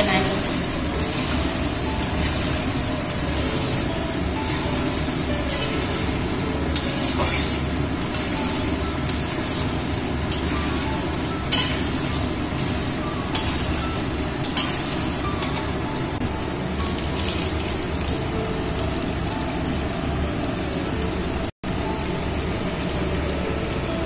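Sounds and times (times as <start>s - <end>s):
cheese cubes sizzling in oil: 0.0s - 24.0s
spatula scraping metal pan: 6.7s - 10.8s.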